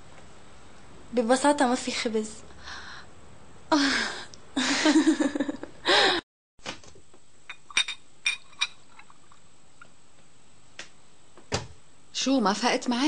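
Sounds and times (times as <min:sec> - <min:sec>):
woman laughing: 0:03.7 - 0:06.2
dishes and utensils clinking: 0:07.5 - 0:09.4.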